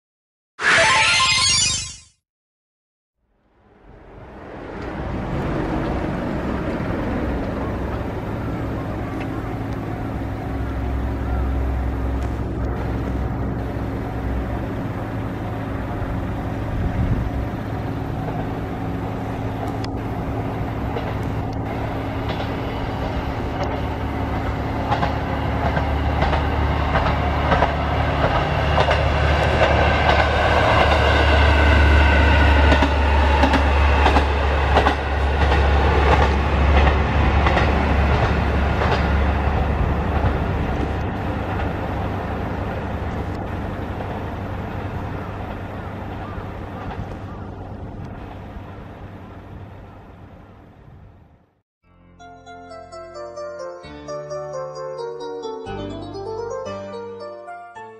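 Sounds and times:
whining tone: 0.6 - 2.1
diesel railcar engine drone: 3.3 - 51.6
wheels clicking on rails: 4.6 - 31.5, 32.1 - 50.2.

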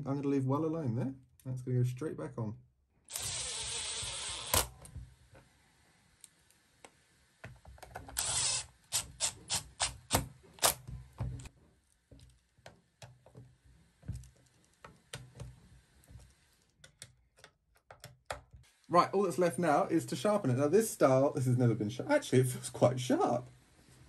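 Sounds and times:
cordless driver whirring: 3.1 - 4.8, 8.2 - 10.0
screws turned by hand: 3.1 - 4.8, 7.9 - 10.8.

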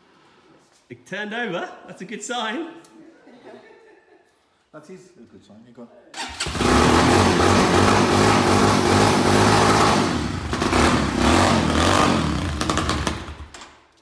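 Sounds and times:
motorcycle engine starting and running: 6.2 - 13.8.

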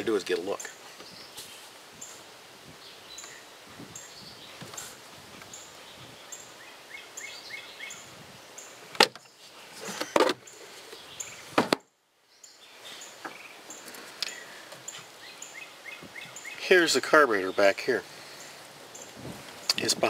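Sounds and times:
engine cover clunking and rattling: 9.8 - 10.4.

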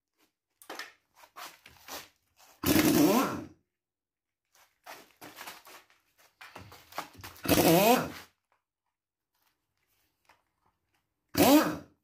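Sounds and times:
pneumatic impact wrench: 2.6 - 3.5, 7.4 - 8.1, 11.4 - 11.9.

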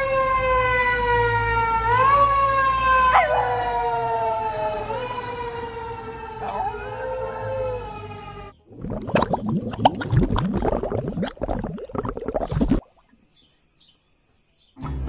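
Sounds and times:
fire engine siren wailing: 0.0 - 8.6
dog howling: 1.9 - 8.1.

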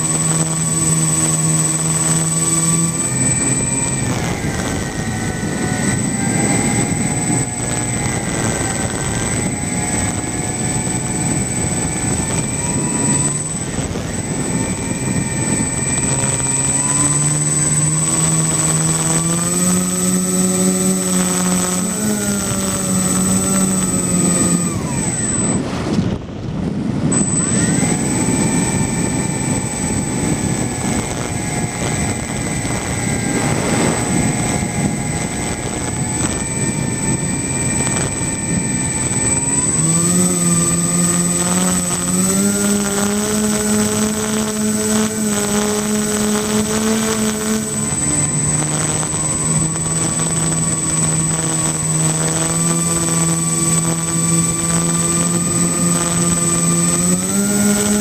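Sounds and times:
propeller drone: 0.0 - 58.0
thin high whine: 0.0 - 58.0
rushing air: 29.2 - 40.0.

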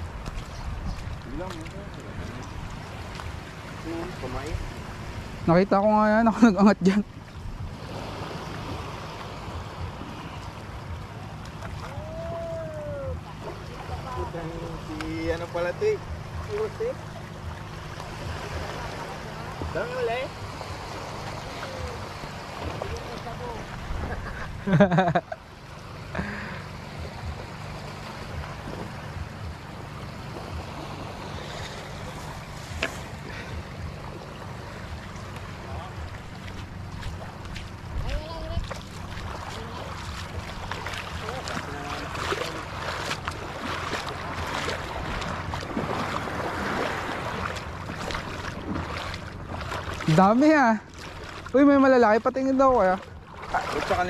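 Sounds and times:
wind on microphone: 0.0 - 5.8, 7.2 - 15.4, 27.0 - 51.7
small waves washing on shore: 0.0 - 54.0.

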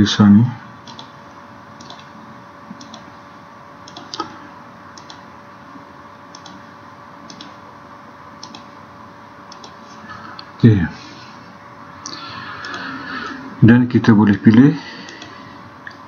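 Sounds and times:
faint electrical hum: 0.0 - 16.0.

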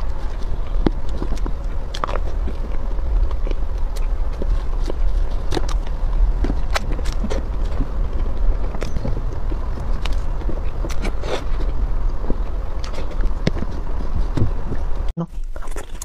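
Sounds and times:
wet mouth chewing smacks: 0.0 - 11.7
steady low rumble: 0.0 - 16.0.

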